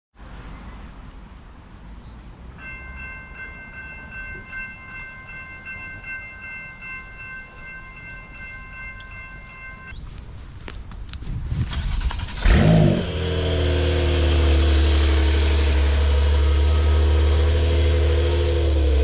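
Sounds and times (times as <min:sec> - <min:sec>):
low traffic rumble: 0:00.2 - 0:19.0
high-pitched railway warning tone: 0:02.6 - 0:10.0.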